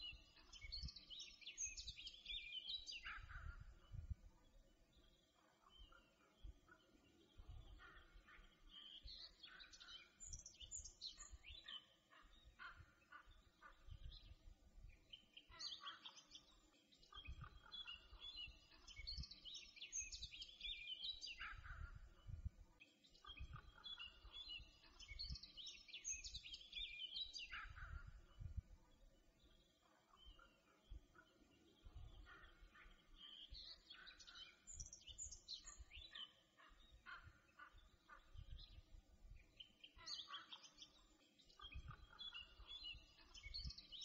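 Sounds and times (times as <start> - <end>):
faint songbirds chirping: 0.0 - 44.0.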